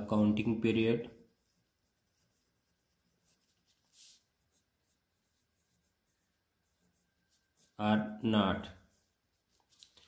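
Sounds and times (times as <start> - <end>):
pen scratching on paper: 1.1 - 7.8.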